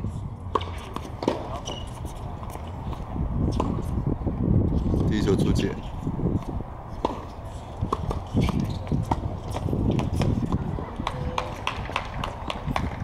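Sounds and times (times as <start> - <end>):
tennis ball bouncing on hard court: 0.5 - 4.0, 6.9 - 13.0
tennis ball struck by rackets: 0.5 - 4.0, 6.9 - 13.0.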